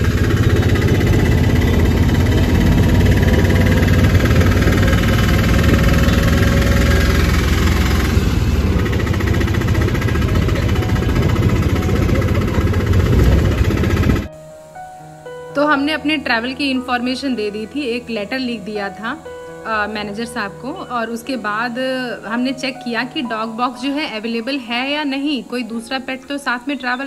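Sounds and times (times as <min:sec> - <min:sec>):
auto-rickshaw engine running: 0:00.0 - 0:14.4.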